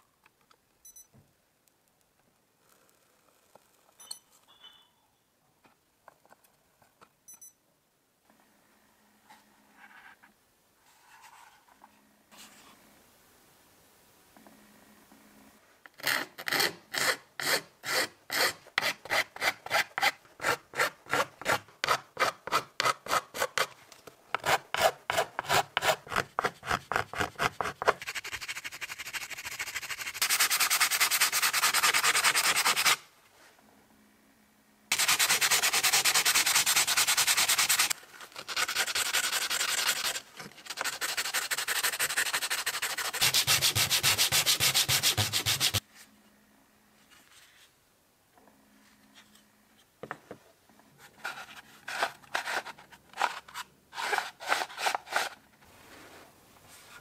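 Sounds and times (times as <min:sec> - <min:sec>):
plastic rubbed on sandpaper: 0:26.0 - 0:33.0, 0:34.9 - 0:45.8
file scraping plastic: 0:34.9 - 0:45.8, 0:51.1 - 0:55.4.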